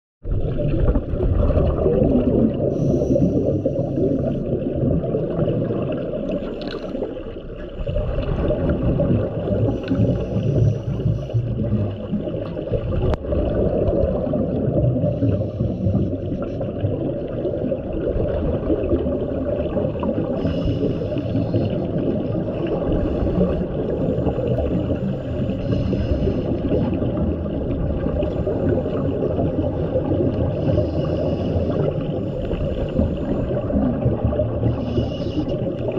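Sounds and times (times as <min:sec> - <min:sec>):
diver breathing through regulator: 0:02.7 - 0:04.5, 0:09.6 - 0:11.6, 0:20.4 - 0:22.0, 0:22.9 - 0:27.0, 0:30.4 - 0:33.8, 0:34.6 - 0:35.9.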